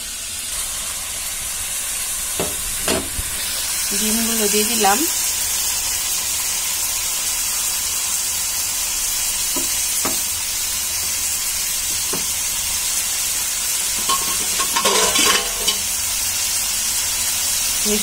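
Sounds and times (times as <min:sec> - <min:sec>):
food sizzling in a frying pan: 0:00.0 - 0:18.0
spatula scraping a pan: 0:13.9 - 0:15.9.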